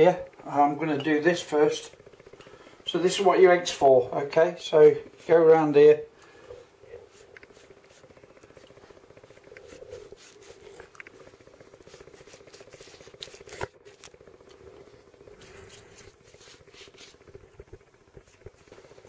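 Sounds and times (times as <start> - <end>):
faint steady hum: 0.0 - 19.0
pastry brush scraping and tapping: 6.9 - 14.2, 15.3 - 19.0.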